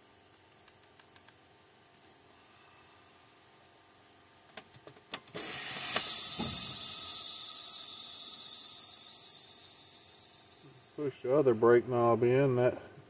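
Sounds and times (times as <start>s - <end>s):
air brakes hissing: 5.4s - 11.0s.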